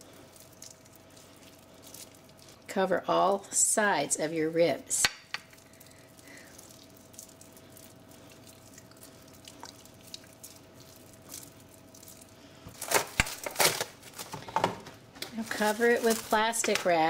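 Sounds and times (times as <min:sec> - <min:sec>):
hands rubbing spice on meat: 0:00.0 - 0:02.7, 0:05.5 - 0:12.4
plastic wrap crinkling: 0:05.5 - 0:17.0.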